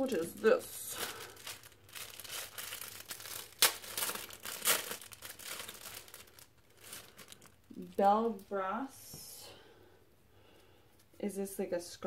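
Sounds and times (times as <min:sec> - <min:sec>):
plastic wrapper crinkling and tearing: 0:00.0 - 0:08.1.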